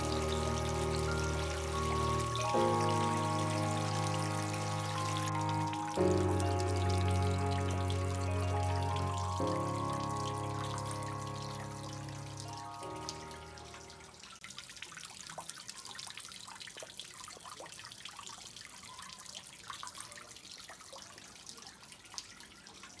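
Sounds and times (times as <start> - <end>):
background music with held notes: 0.0 - 14.4
small waterfall splashing: 0.0 - 23.0.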